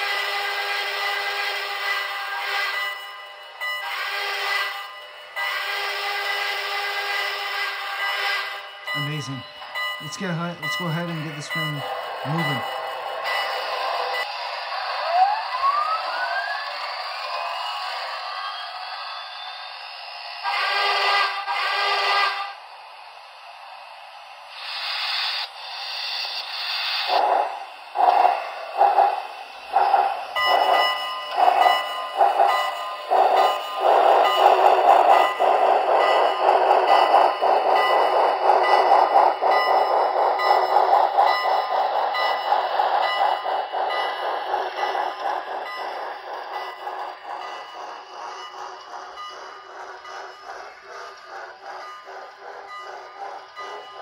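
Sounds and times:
train cars rolling over rails: 0.0 - 22.6, 25.2 - 54.0
steam locomotive chuffing: 0.0 - 54.0
steam hiss: 16.8 - 54.0
model train whistle blasts: 20.4 - 22.5.

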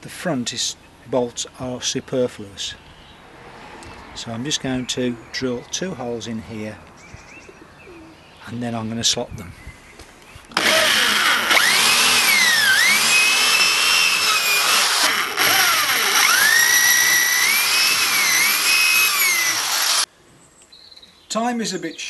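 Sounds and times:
electric drill boring through wood: 10.6 - 20.1.

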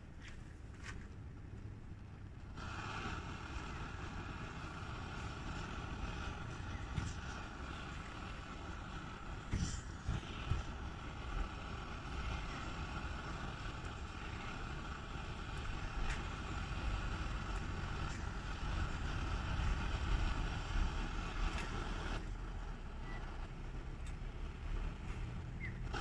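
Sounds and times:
low rumbling noise with hiss: 0.0 - 26.0
faint clicks: 24.0 - 24.3.

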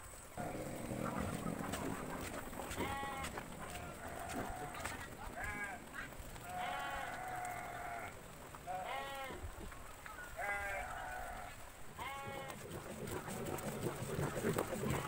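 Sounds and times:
goat or sheep bleating: 2.6 - 9.4, 10.3 - 12.7.

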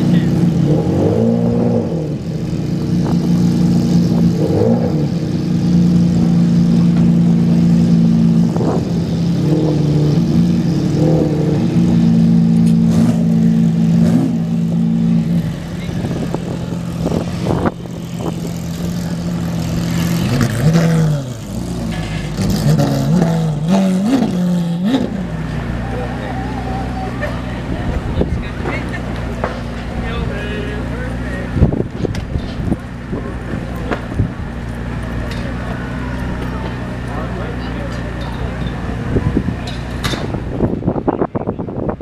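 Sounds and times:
car engine idling: 1.6 - 22.7.

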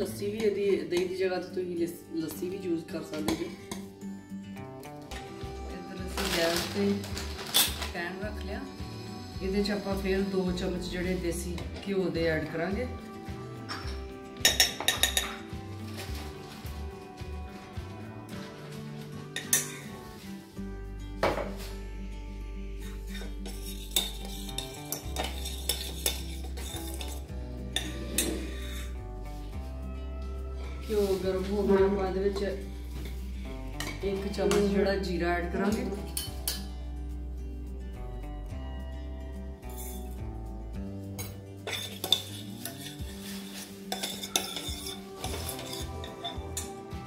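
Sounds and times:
spoon clinking and scraping saucepan: 13.6 - 16.1, 19.3 - 20.1, 22.8 - 29.0, 36.0 - 36.7, 39.6 - 40.2, 41.2 - 47.0.

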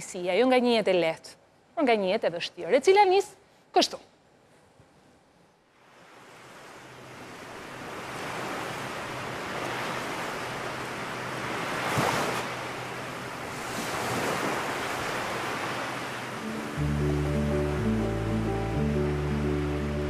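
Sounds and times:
sea waves washing in: 5.8 - 20.0.

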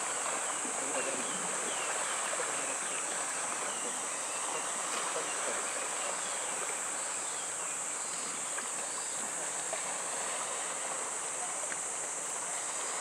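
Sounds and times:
small splashes: 0.0 - 7.3
water lapping on shore: 0.0 - 13.0.

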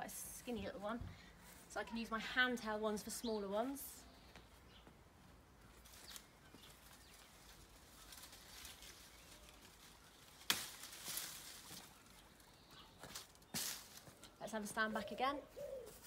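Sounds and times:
leaves and twigs rustling: 3.6 - 16.0
secateurs snipping branch: 10.3 - 11.9.

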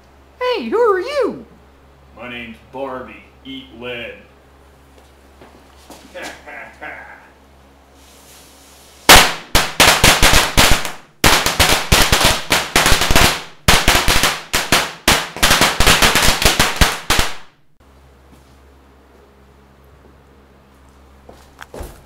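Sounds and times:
firecrackers banging: 9.1 - 17.6.

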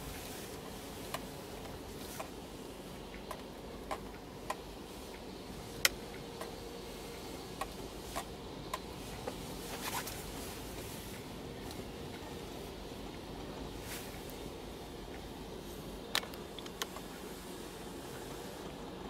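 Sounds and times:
car cabin hum: 0.0 - 19.0
light ticks and clicks: 3.0 - 6.6, 16.1 - 17.1.

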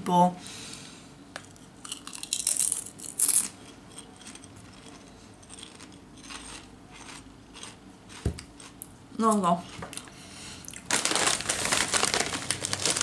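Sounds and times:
potato chips crunching: 1.8 - 8.9, 10.7 - 13.0.

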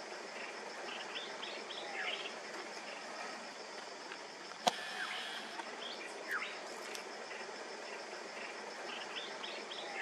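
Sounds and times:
pulsing insect trill: 0.0 - 10.0
birds chirping: 0.3 - 3.2, 7.2 - 10.0.

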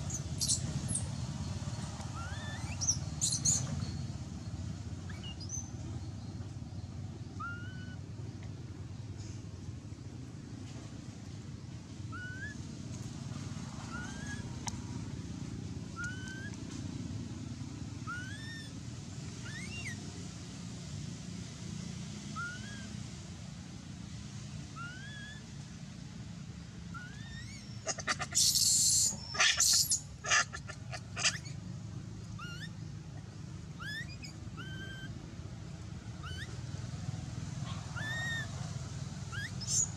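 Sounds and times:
short rising animal chirp: 2.1 - 3.6, 16.0 - 16.5, 19.4 - 20.0, 26.9 - 31.6, 32.4 - 32.8, 33.8 - 35.2, 36.2 - 36.6, 37.9 - 38.6, 39.3 - 39.9
harsh high animal calls: 7.4 - 8.0, 24.8 - 25.4, 26.9 - 31.6, 32.4 - 32.8, 33.8 - 35.2, 36.2 - 36.6, 37.9 - 38.6, 39.3 - 39.9.

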